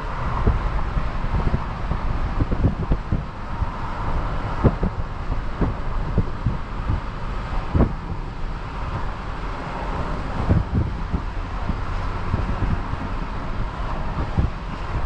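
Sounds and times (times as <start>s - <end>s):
vehicle road noise: 0.0s - 15.0s
wind buffeting microphone: 0.0s - 15.0s.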